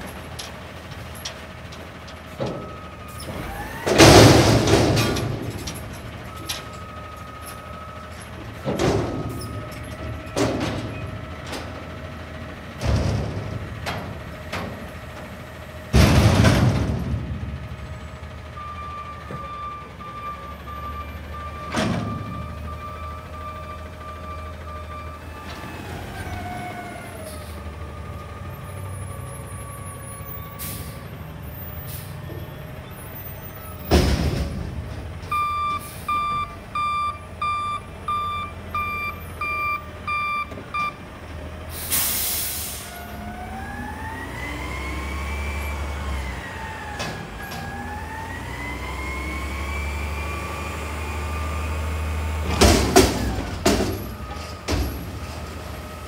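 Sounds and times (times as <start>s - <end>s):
diesel engine running: 0.0s - 56.0s
loud metal clanks: 0.4s - 6.9s, 15.9s - 17.8s
reversing beeps: 6.3s - 8.2s, 18.6s - 25.3s, 35.3s - 41.0s
air brake hiss: 41.7s - 43.0s.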